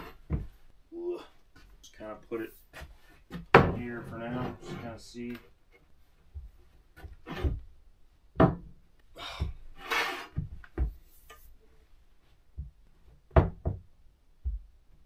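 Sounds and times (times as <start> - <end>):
rasping scrape: 9.8 - 10.4.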